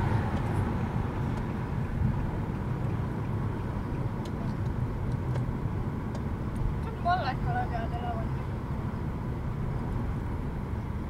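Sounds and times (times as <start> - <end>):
car interior road noise: 0.0 - 11.0.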